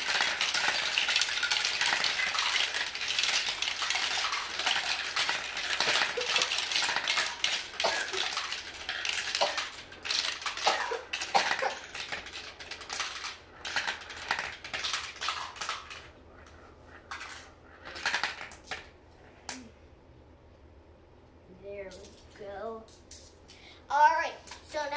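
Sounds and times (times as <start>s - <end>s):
marbles rolling and clattering: 0.0s - 16.1s, 16.9s - 18.9s.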